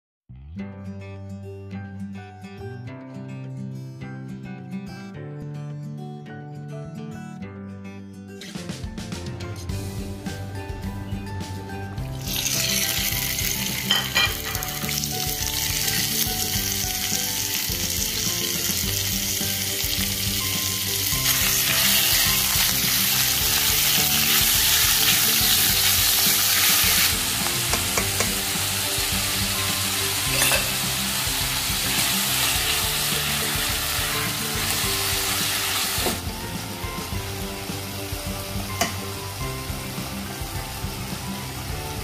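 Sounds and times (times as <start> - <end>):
chicken sizzling in oil: 12.1 - 42.0.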